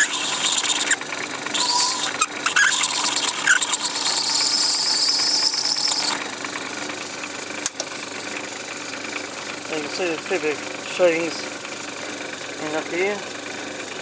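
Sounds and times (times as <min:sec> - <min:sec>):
blade scraping spinning metal: 0:00.0 - 0:06.4
lathe motor humming: 0:00.0 - 0:14.0.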